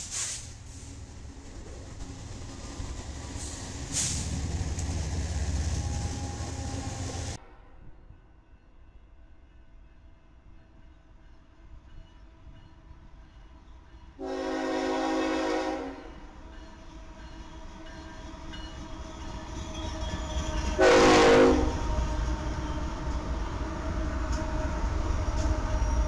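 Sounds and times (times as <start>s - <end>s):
locomotive rumble: 0.0s - 7.4s
train air horn blasts: 14.2s - 16.3s, 20.7s - 22.2s.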